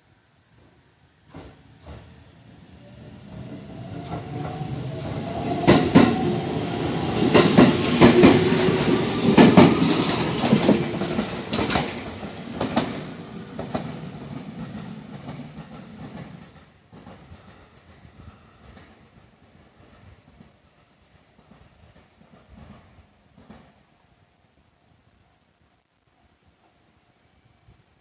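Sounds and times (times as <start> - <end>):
train wheels clacking on rail joints: 1.3 - 2.1, 7.0 - 23.8.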